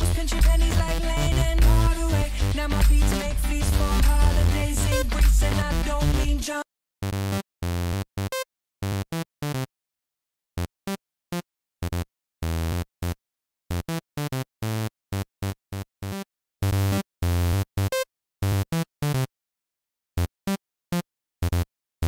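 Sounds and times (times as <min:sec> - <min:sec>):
synthesizer sawtooth bass notes: 0:00.0 - 0:06.5.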